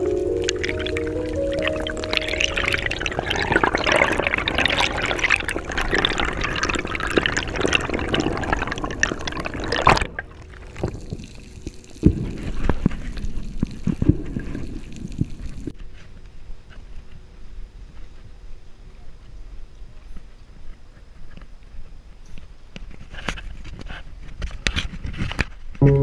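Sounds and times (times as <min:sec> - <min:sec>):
water splashing and bubbling: 0:00.0 - 0:15.8.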